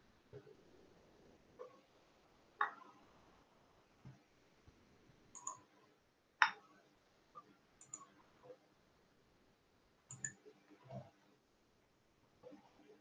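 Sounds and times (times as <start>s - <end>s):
computer mouse clicks: 5.3s - 5.7s, 7.8s - 8.2s, 10.1s - 11.1s.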